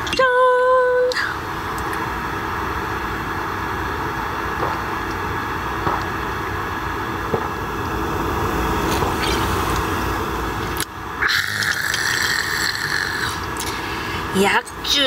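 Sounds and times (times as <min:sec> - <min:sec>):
gulps from a bottle: 0:11.2 - 0:13.8.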